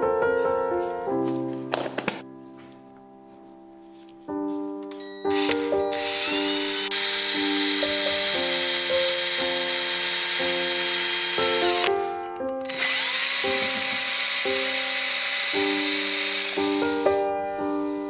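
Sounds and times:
background music: 0:00.0 - 0:18.0
power drill whining: 0:05.3 - 0:18.0.

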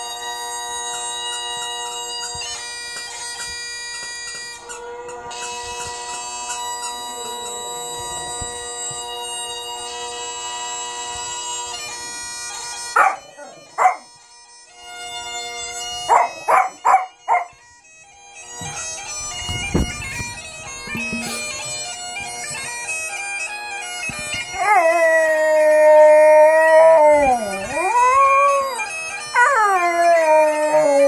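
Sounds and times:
bagpipe music: 0:00.0 - 0:31.0
small dog barking: 0:13.0 - 0:14.0, 0:16.1 - 0:17.5
dog howling: 0:13.0 - 0:14.1, 0:24.6 - 0:31.0
thump: 0:18.6 - 0:21.7.

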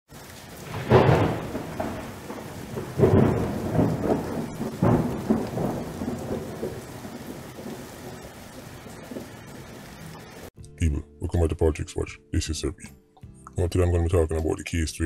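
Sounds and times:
rain-like hiss: 0:00.1 - 0:10.5
rolling thunderclaps: 0:00.3 - 0:10.5.

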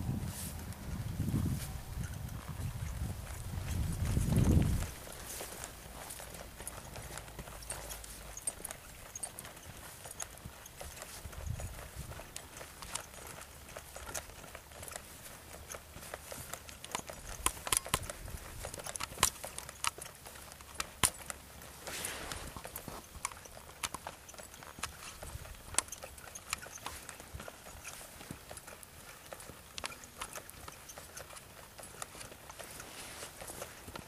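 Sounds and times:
horse hoofbeats trotting on dirt: 0:00.0 - 0:34.0.

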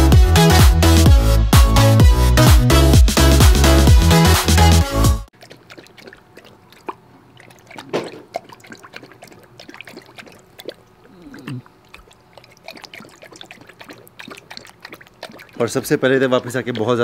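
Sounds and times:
dog lapping water from metal bowl: 0:05.3 - 0:17.0.

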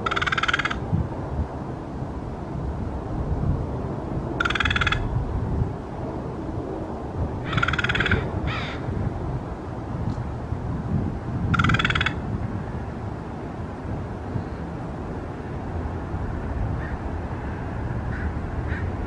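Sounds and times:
crow calling: 0:00.0 - 0:00.8, 0:04.4 - 0:05.1, 0:07.4 - 0:08.9, 0:11.5 - 0:12.2, 0:16.8 - 0:19.0.

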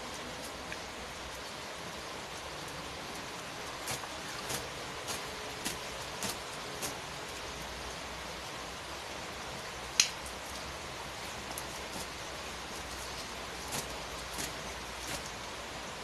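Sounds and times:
steady rain falling: 0:00.0 - 0:16.0
wet hair swishing: 0:03.7 - 0:07.2, 0:11.3 - 0:15.5
wet hair snapping: 0:10.0 - 0:10.2.

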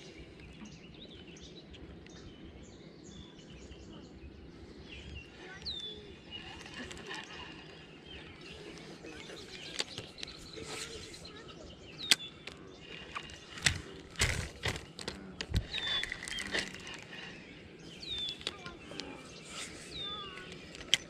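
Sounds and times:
bird chirping: 0:00.0 - 0:21.0
fishing reel clicking: 0:13.0 - 0:17.2.

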